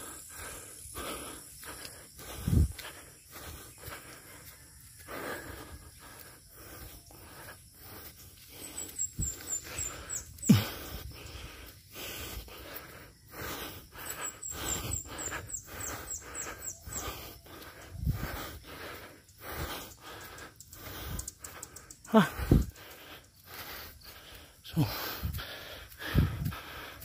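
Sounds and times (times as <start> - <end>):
person breathing hard and wheezing: 0.0 - 27.0.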